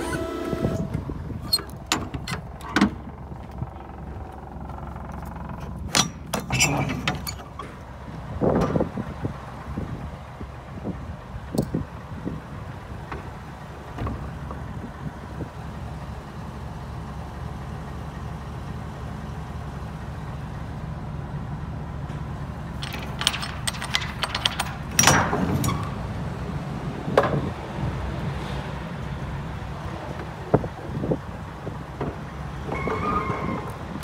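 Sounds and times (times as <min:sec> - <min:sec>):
metallic clicks and rattles: 0:22.7 - 0:25.9.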